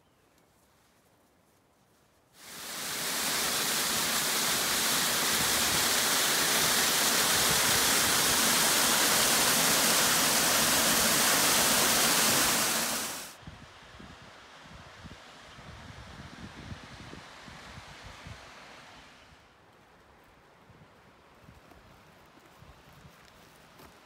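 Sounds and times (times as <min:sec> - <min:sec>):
faint hiss: 0:00.0 - 0:24.0
waterfall rushing over boulders: 0:02.4 - 0:13.4.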